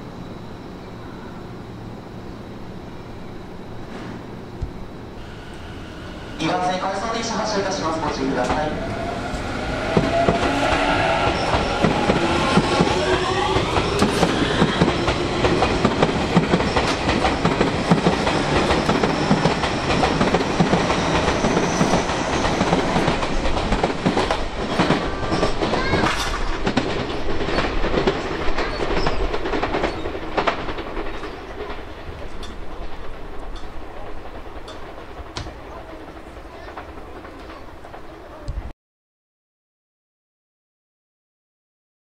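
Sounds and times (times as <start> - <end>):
electric train motors whining: 4.8 - 23.8
train wheels clattering over joints: 8.3 - 38.4.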